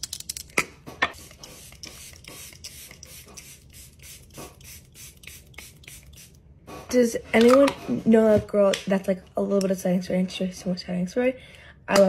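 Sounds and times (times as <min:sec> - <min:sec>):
spray bottle hissing puffs: 0:01.2 - 0:06.4.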